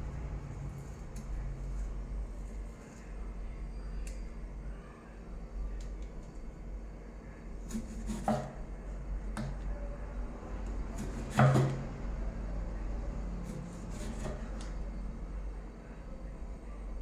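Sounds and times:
knife slicing tomatoes: 7.6 - 8.6, 10.9 - 11.8, 13.4 - 14.7.

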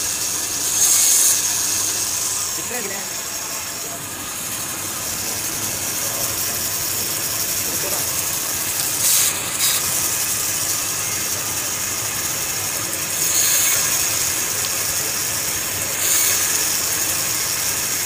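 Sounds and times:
band saw cutting wood: 0.0 - 18.0.

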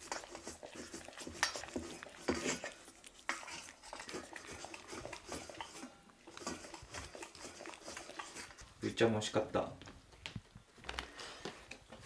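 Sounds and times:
kitten lapping milk: 0.0 - 8.9.

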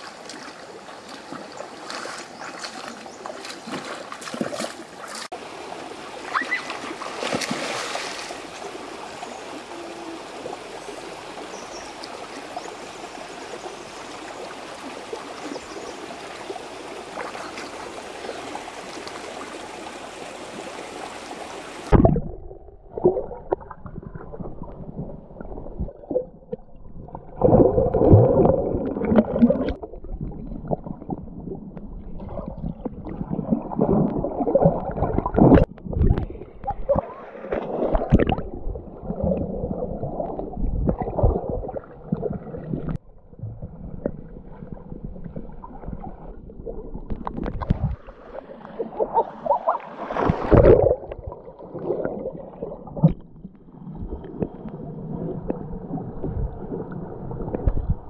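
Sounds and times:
stream water splashing: 0.0 - 26.4, 27.4 - 31.3, 32.0 - 43.0, 43.9 - 57.8
person wading and swimming: 0.0 - 26.7, 27.4 - 58.0
underwater bubbling and thrashing: 21.8 - 58.0.

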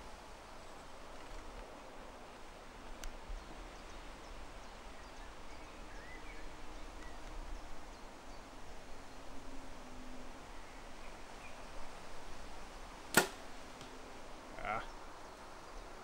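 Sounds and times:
steady low hiss: 0.0 - 16.0
sharp click: 13.1 - 13.9
faint bird chirps: 14.6 - 15.9.

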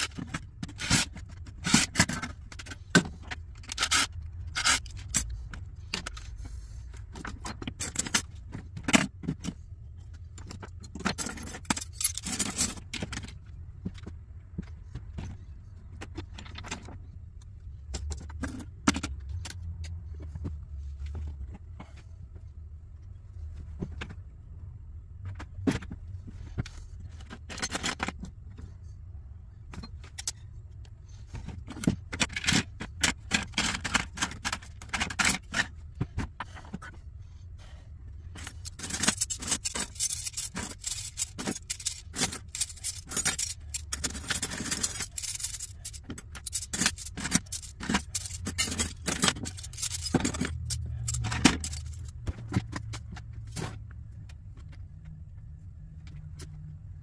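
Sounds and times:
metal parts clattering on wood: 0.0 - 6.3, 7.1 - 9.6, 10.4 - 15.4, 25.2 - 28.3, 31.3 - 36.8, 38.3 - 53.8
low steady hum: 0.0 - 57.0.

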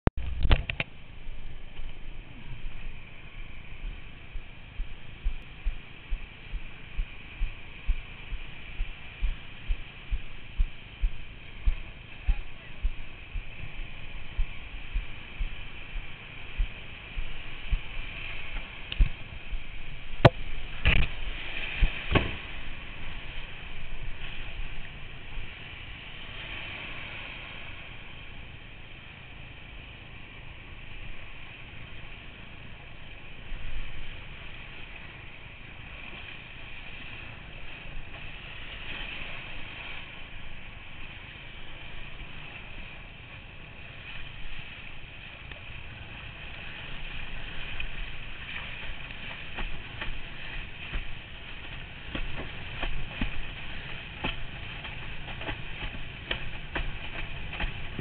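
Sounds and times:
wind buffeting microphone: 0.2 - 28.8, 32.8 - 58.0
water rushing under board: 0.2 - 58.0.

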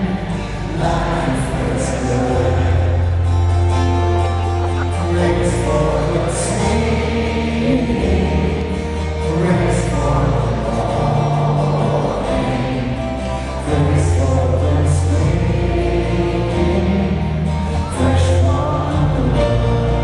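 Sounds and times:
live band with singing: 0.0 - 20.0.

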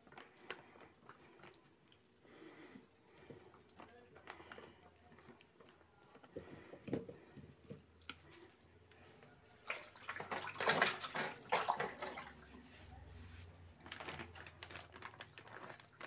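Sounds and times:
tap water splashing into sink: 9.7 - 12.6.

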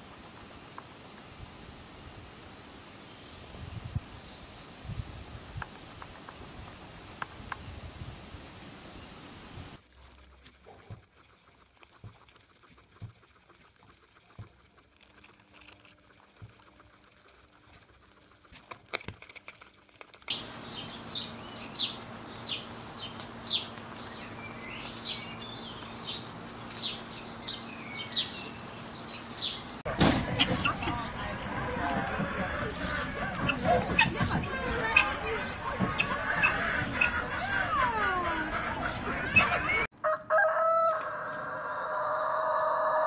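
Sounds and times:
guinea pigs chewing grass: 9.8 - 39.9
low steady hum: 20.3 - 39.9.

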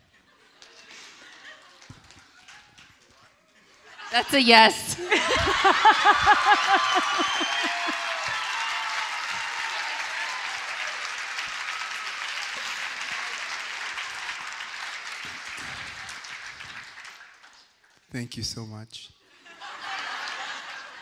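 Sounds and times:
person laughing: 4.2 - 8.0
audience applauding: 4.2 - 17.8.

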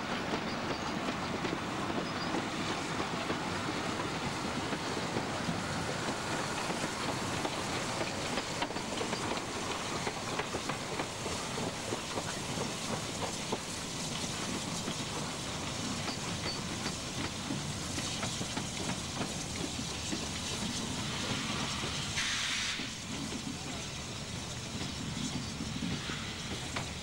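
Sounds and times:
steam locomotive running: 0.0 - 27.0
steam hiss burst: 20.4 - 23.4, 25.0 - 27.0.

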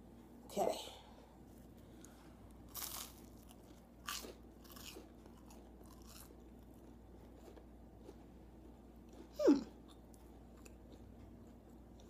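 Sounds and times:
crunching toast: 2.0 - 9.3.

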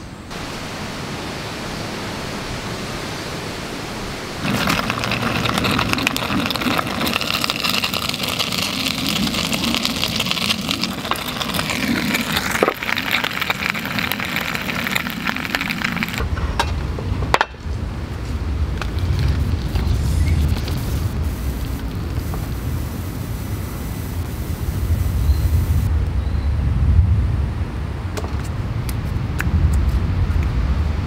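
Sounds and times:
food sizzling and crackling: 4.4 - 16.2, 18.8 - 25.9
gas burner hissing: 4.4 - 16.2, 18.8 - 25.9
low rumble: 16.1 - 28.0.

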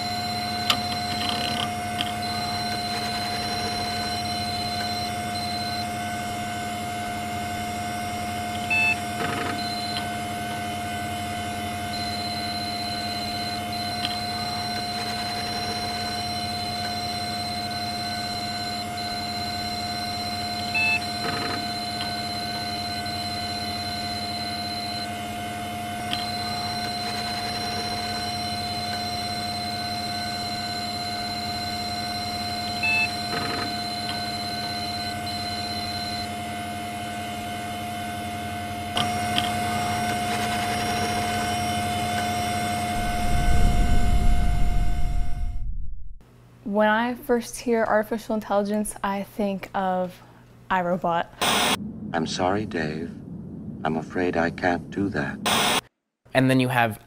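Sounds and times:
burst of beeps: 0.0 - 5.9, 11.9 - 25.1, 26.1 - 36.3
steady electronic hum: 0.0 - 56.9.

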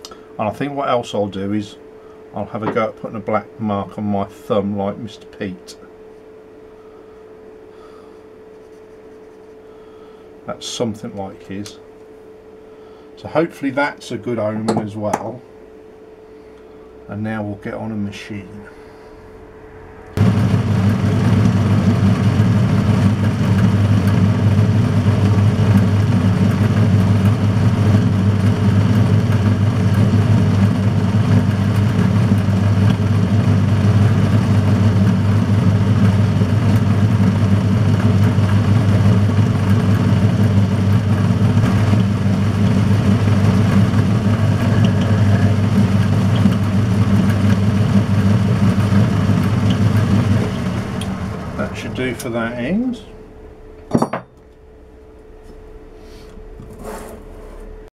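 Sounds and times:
metal lathe motor humming: 20.1 - 53.9.

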